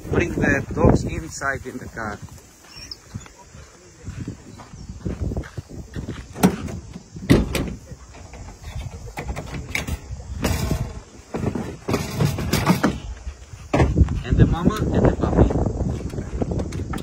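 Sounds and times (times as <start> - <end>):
knocks and clunks: 6.2 - 14.9.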